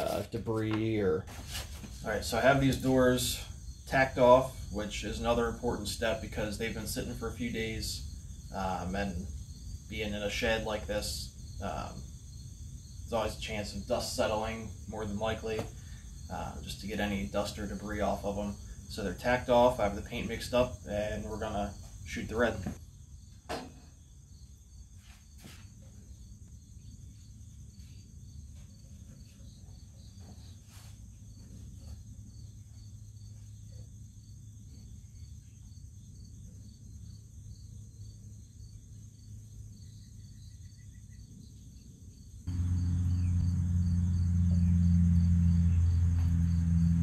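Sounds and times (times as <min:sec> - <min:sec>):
crickets chirping: 0:00.0 - 0:47.0
faint low hum: 0:00.0 - 0:47.0
air compressor motor drone: 0:42.5 - 0:47.0.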